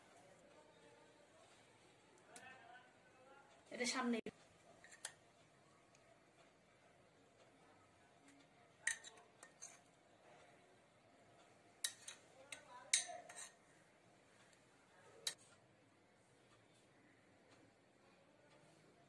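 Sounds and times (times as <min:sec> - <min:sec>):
metal spoon clinking on china bowl: 0:08.8 - 0:09.9, 0:11.8 - 0:13.6.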